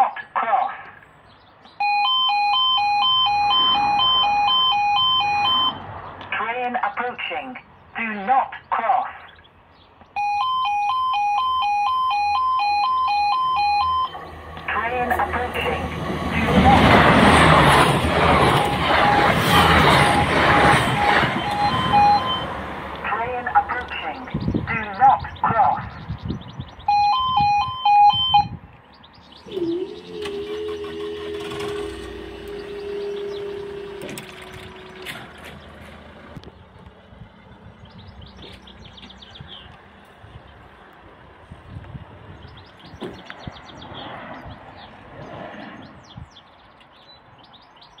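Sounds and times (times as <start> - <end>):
small birds chirping: 0.9 - 1.9, 5.9 - 10.2, 23.6 - 27.1, 28.6 - 30.9, 32.3 - 48.0
barrier drive unit whine: 1.7 - 6.3, 10.1 - 24.7, 26.8 - 43.1
two-tone electronic warning signal: 1.8 - 5.9, 10.2 - 24.2, 26.8 - 28.6, 29.4 - 35.2
wind buffeting microphone: 23.9 - 29.7, 30.7 - 47.5.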